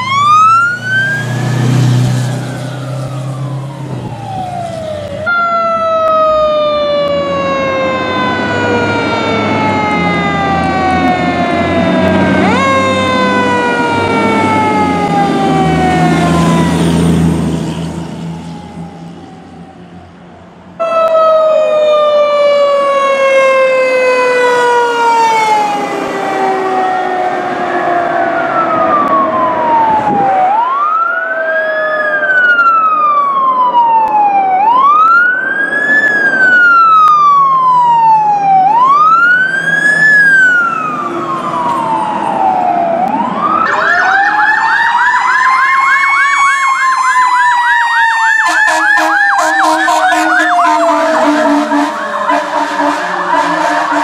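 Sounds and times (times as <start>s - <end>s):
fast warbling siren: 0.0s - 20.1s, 20.8s - 54.0s
fire engine sirens: 0.0s - 54.0s
steady horn tone: 48.4s - 54.0s.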